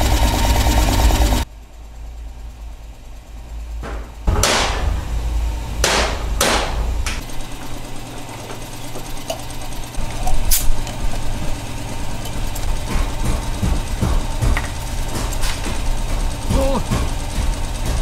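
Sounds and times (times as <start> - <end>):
low steady rumble: 0.0 - 18.0
sharp knocks: 3.8 - 7.3, 12.8 - 18.0.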